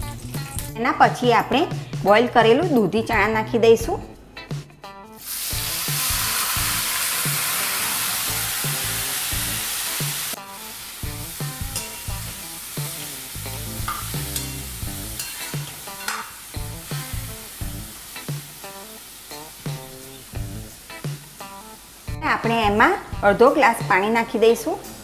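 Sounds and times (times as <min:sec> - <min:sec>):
food sizzling in hot oil: 0:05.2 - 0:25.0
spoon stirring and scraping pan: 0:13.8 - 0:16.4.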